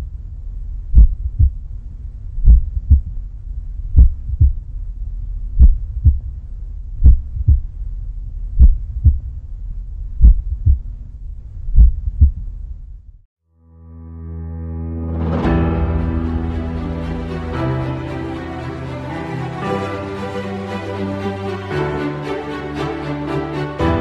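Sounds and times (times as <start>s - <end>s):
steady low hum: 0.0s - 13.3s
heartbeat thumps: 0.9s - 1.7s, 2.4s - 3.2s, 3.9s - 4.7s, 5.5s - 6.3s, 7.0s - 7.8s, 8.5s - 9.4s, 10.2s - 12.6s.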